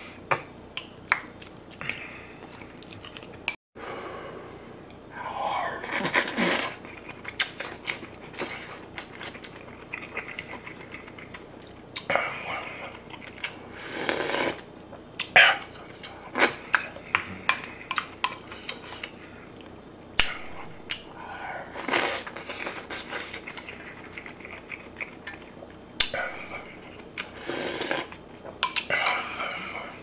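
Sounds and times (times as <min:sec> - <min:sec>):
chewing: 0:00.4 - 0:03.6, 0:06.1 - 0:21.1, 0:21.8 - 0:30.0
loud slurps: 0:05.8 - 0:06.8, 0:13.8 - 0:14.6, 0:21.7 - 0:23.4, 0:27.3 - 0:28.1.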